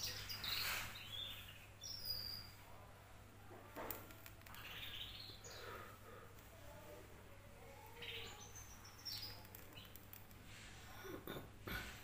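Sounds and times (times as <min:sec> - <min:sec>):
canary twittering: 0:00.0 - 0:02.6, 0:04.0 - 0:05.8, 0:07.9 - 0:10.3.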